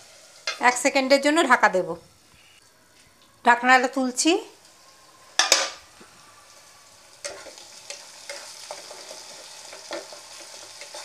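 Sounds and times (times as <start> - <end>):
onions sizzling in hot oil: 0.0 - 2.0, 3.9 - 11.0
spatula scraping a pan: 7.2 - 11.0.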